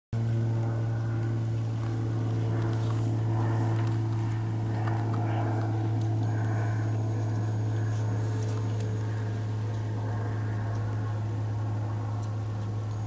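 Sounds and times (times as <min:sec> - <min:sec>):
steady low hum: 0:00.2 - 0:13.0
faint small ticks: 0:04.8 - 0:09.9, 0:10.6 - 0:10.9, 0:12.1 - 0:13.0.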